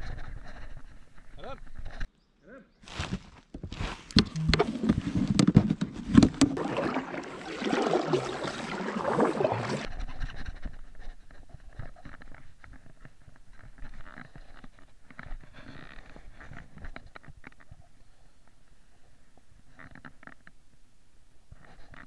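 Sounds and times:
knocks and scrapes against kayak hull: 0:03.5 - 0:18.0
water sounds: 0:06.0 - 0:09.9.

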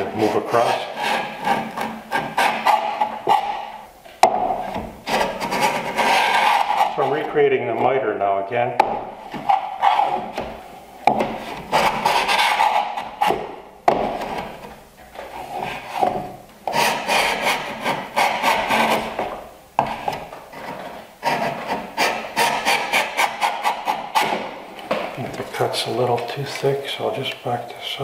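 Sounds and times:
hand plane rasping across wood: 0:00.2 - 0:03.7, 0:05.0 - 0:07.3, 0:11.2 - 0:13.4, 0:15.3 - 0:19.2, 0:19.8 - 0:24.5.

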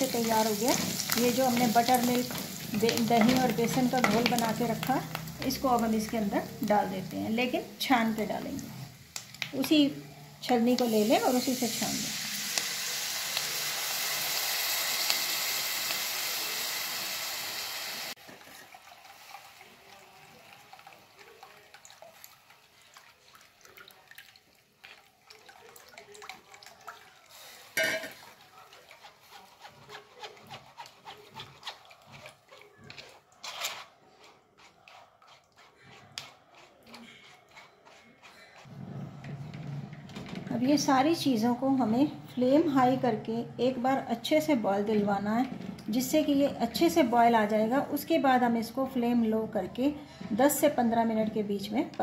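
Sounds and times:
spoon scraping plastic strainer: 0:00.0 - 0:05.5, 0:28.7 - 0:40.4
batter sizzling in hot fat: 0:00.0 - 0:22.6.

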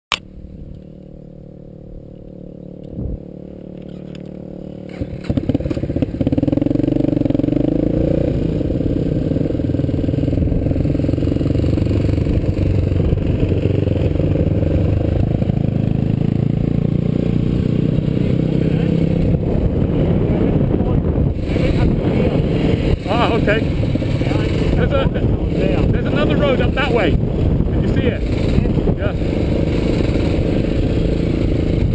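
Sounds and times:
motorcycle engine running: 0:00.1 - 0:31.9.

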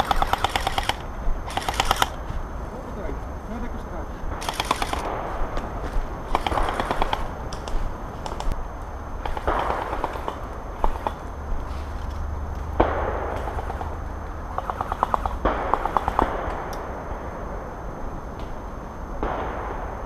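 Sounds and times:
airsoft guns firing: 0:00.0 - 0:02.2, 0:04.3 - 0:05.7, 0:06.3 - 0:08.5, 0:09.2 - 0:11.2, 0:12.8 - 0:17.0.

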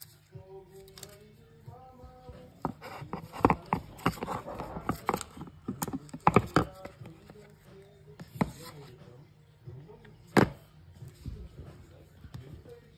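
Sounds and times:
cardboard box packaging handled: 0:02.6 - 0:07.4.

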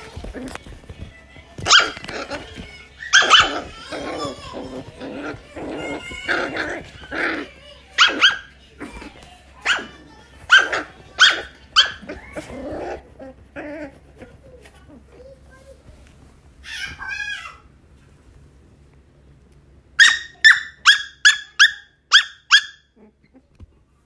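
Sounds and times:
puppy barking: 0:01.6 - 0:02.4, 0:03.0 - 0:09.0, 0:09.6 - 0:12.7, 0:20.0 - 0:23.0.

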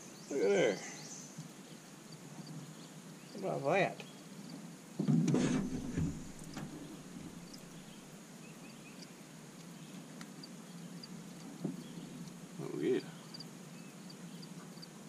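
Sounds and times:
faint chirps: 0:00.0 - 0:04.6, 0:05.4 - 0:15.0
faint high hiss: 0:00.0 - 0:15.0
muffled rustle and knock: 0:04.5 - 0:08.0.

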